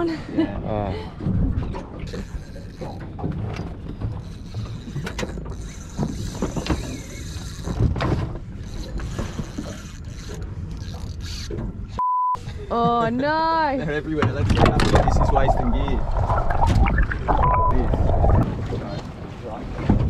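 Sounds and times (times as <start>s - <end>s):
wind rumbling on microphone: 1.0s - 2.3s, 14.2s - 20.0s.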